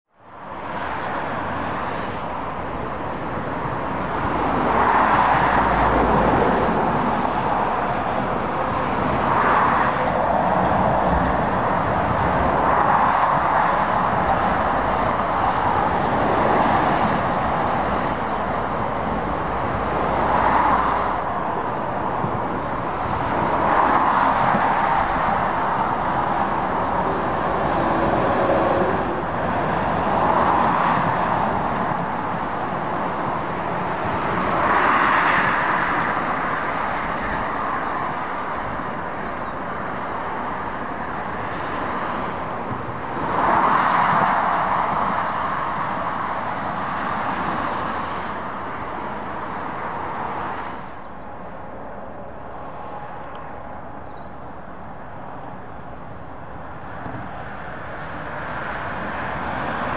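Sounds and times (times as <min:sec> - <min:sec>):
cars and lorries passing: 0:00.2 - 0:59.9
heavy trucks rumbling: 0:01.3 - 0:34.7.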